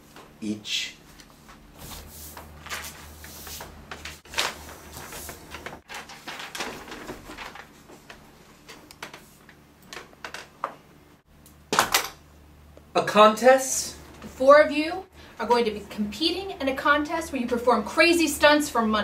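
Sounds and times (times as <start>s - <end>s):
rustling: 1.4s - 9.5s.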